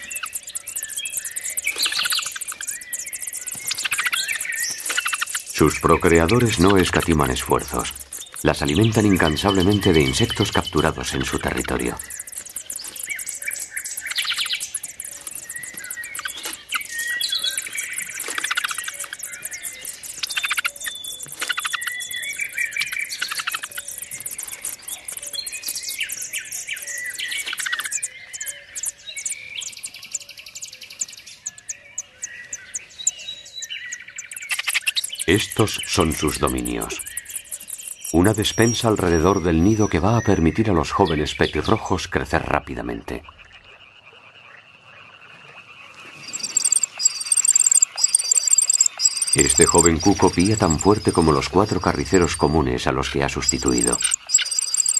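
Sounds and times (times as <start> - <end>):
nestlings chirping: 0.0 - 43.8, 45.7 - 54.9
whistled notes: 46.4 - 54.9.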